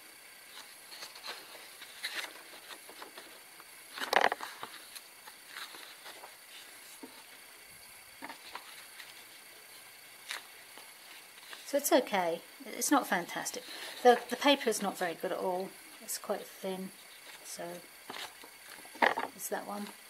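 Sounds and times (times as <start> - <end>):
paper pages turning: 0.5 - 7.4, 8.2 - 9.4, 10.2 - 11.7, 17.1 - 19.3.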